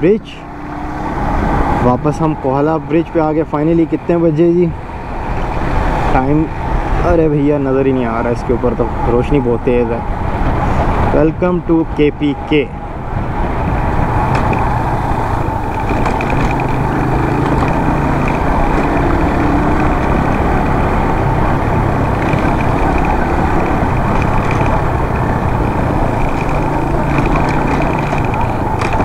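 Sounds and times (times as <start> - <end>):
wind noise: 4.8 - 29.0
motorcycle engine running: 14.1 - 29.0.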